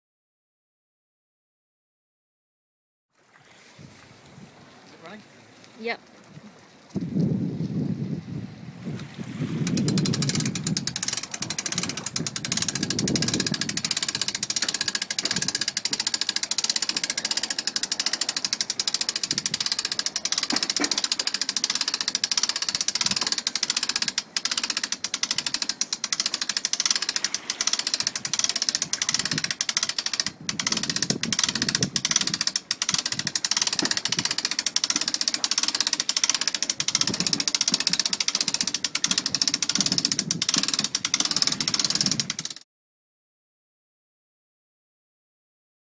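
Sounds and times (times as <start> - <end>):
hand-cranked winch ratcheting: 9.6 - 42.6.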